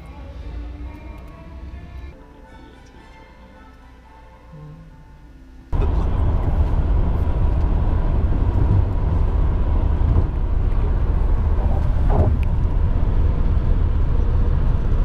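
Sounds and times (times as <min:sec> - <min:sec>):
car road noise rumble: 0:05.7 - 0:15.0.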